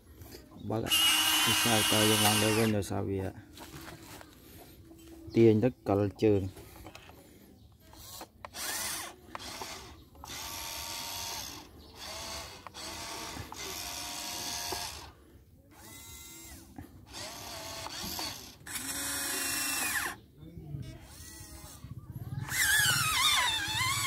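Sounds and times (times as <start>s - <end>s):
toy gear motors whirring: 0.8s - 2.8s, 7.8s - 20.2s, 20.8s - 24.0s.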